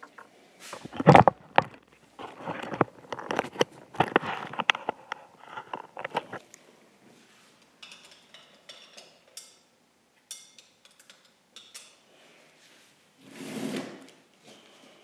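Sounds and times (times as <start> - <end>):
metal tools clinking and scraping: 7.8 - 9.7.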